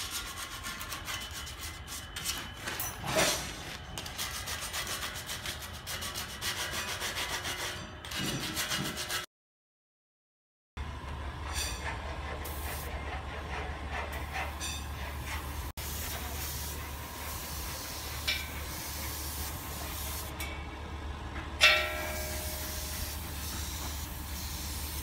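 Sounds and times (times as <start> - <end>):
spray gun hissing: 15.8 - 20.3, 22.4 - 25.0.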